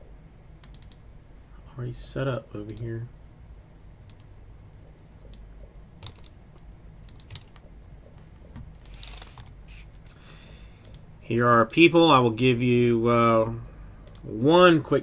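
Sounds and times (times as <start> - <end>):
low steady hum: 0.0 - 15.0
keyboard keys clicking: 5.3 - 6.3, 7.0 - 7.7.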